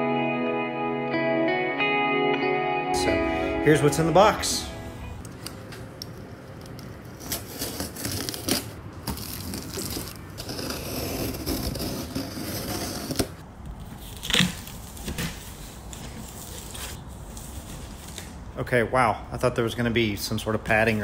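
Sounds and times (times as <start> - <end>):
knife cutting cardboard: 6.9 - 17.4.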